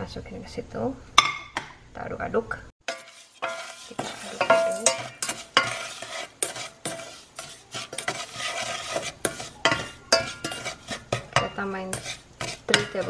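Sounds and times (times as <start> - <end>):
wooden spoon scraping a saucepan: 2.8 - 13.0.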